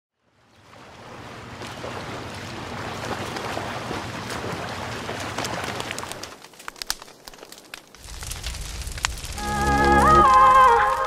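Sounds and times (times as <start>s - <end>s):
surf washing against concrete: 0.8s - 6.4s.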